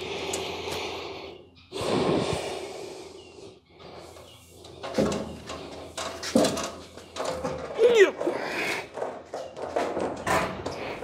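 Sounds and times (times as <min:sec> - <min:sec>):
man breathing heavily: 0:00.0 - 0:06.0, 0:08.2 - 0:09.1, 0:10.6 - 0:11.0.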